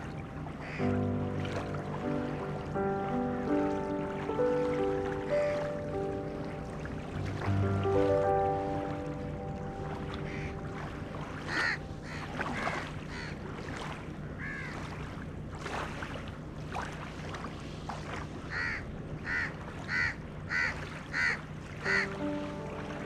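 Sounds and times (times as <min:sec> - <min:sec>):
small waves lapping shore: 0:00.0 - 0:23.0
crows cawing: 0:00.6 - 0:01.0, 0:10.3 - 0:10.6, 0:11.5 - 0:13.4, 0:14.3 - 0:14.8, 0:18.5 - 0:22.2.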